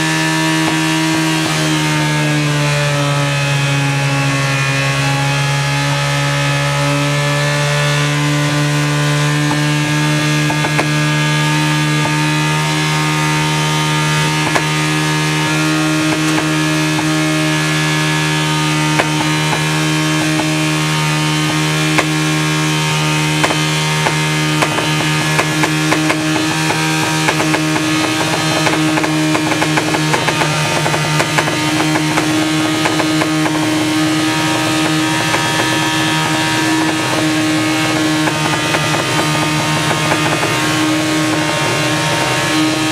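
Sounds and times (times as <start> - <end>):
motorcycle engine running loud: 0.0 - 42.9
sharp clicks and knocks: 9.4 - 42.9.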